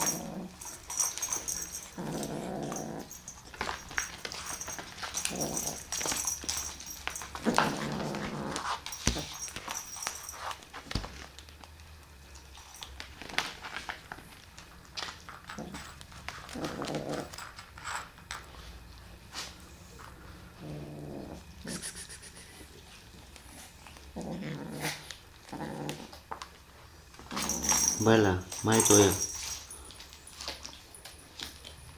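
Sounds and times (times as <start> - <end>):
claws and toy clicking on floor: 0.0 - 18.6
kitten growling low: 1.9 - 3.2, 16.6 - 17.4, 20.5 - 22.7, 24.1 - 26.2.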